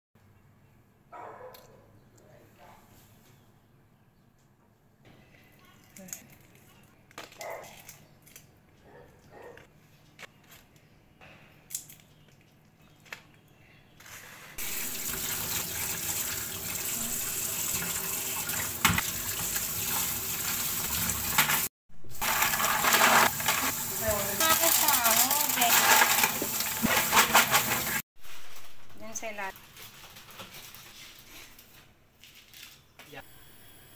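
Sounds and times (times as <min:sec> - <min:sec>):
tap water running into sink: 0:14.6 - 0:21.7, 0:23.3 - 0:25.5.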